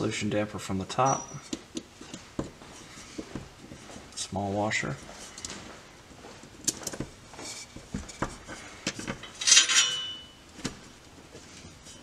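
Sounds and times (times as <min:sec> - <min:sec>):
small metal clinks and taps: 0:01.2 - 0:02.6.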